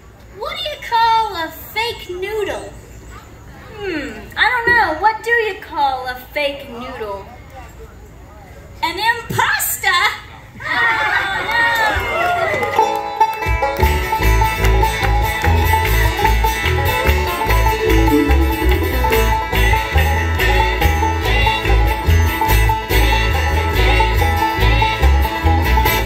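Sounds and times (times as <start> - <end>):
banjo: 12.5 - 26.0
acoustic guitar: 13.4 - 26.0
pulsing bass beat: 13.8 - 26.0.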